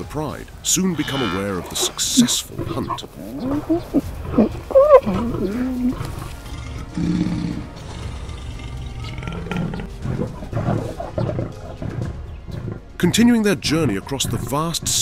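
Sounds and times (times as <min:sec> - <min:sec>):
lions calling and snarling: 0:00.8 - 0:13.0
lion growling: 0:01.0 - 0:12.9.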